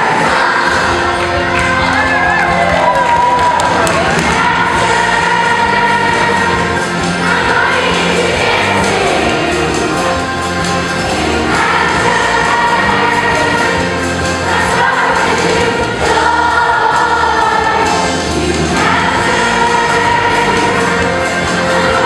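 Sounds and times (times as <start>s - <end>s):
upbeat worship song with voices: 0.0s - 22.0s.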